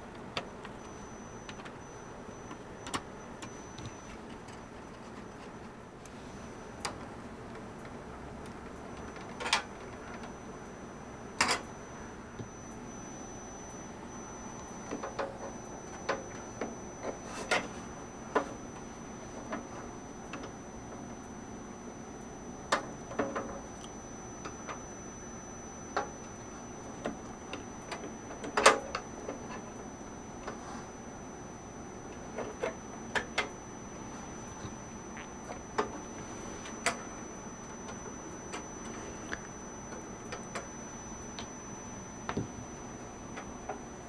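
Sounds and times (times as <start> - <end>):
clicks and knocks of computer parts: 8.6 - 10.4, 11.4 - 11.7, 14.9 - 17.7, 22.7 - 23.7, 27.0 - 29.7.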